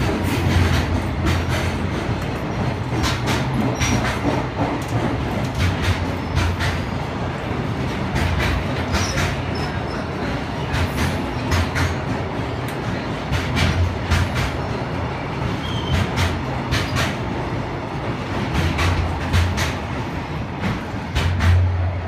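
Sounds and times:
wheels clacking over rail joints: 0.0 - 17.5, 18.3 - 22.0
freight train rumbling past: 0.0 - 22.0.

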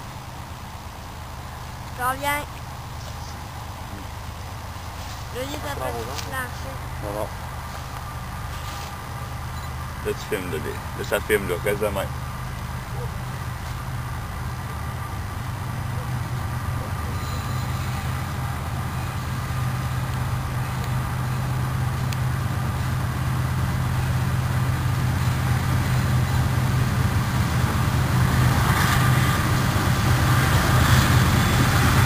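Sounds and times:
diesel locomotive engine droning: 0.0 - 32.0
rough rushing noise: 12.1 - 32.0.

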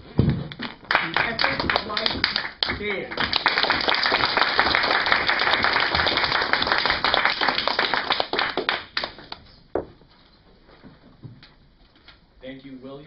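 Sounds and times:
small audience applauding: 0.6 - 9.4.

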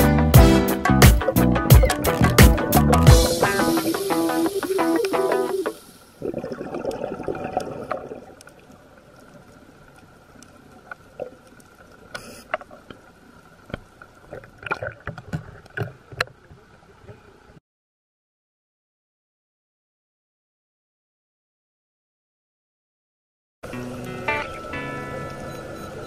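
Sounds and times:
underwater clicks and crackles: 1.8 - 3.1, 6.2 - 17.6
underwater rush of noise: 1.8 - 9.7
faint steady underwater hum: 3.2 - 17.6, 23.7 - 26.0.

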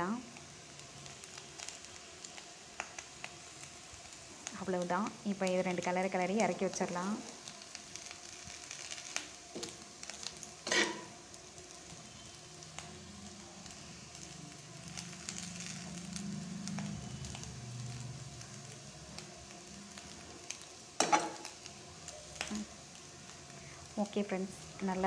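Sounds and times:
food sizzling in a pan: 0.0 - 25.0.

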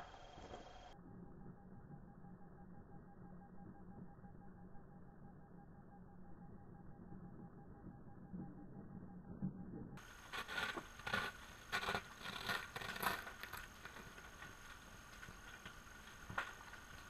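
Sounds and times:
faint high whine: 0.0 - 17.0
scraping and crackling underwater: 7.1 - 17.0.

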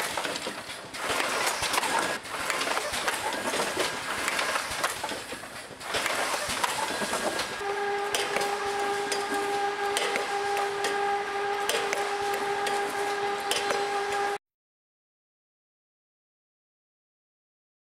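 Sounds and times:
packing machinery rattling: 0.0 - 14.3
steady machine whine: 0.0 - 14.4.

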